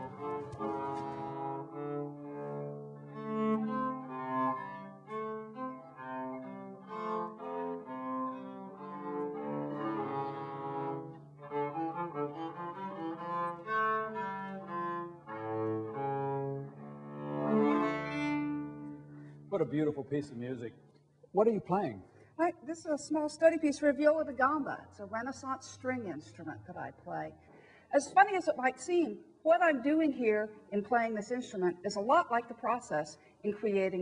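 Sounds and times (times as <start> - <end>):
bowed viola da gamba melody: 0.0 - 20.0.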